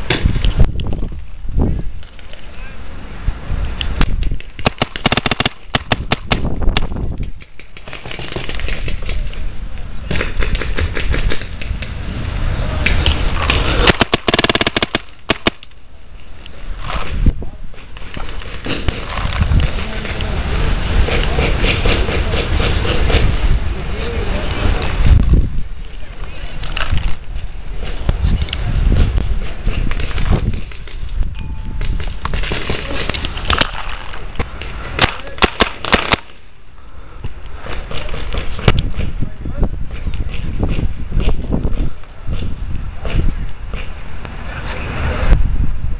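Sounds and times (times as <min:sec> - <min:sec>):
paintball markers firing: 0:04.0 - 0:09.4, 0:10.1 - 0:12.0, 0:12.8 - 0:15.8, 0:31.9 - 0:36.4.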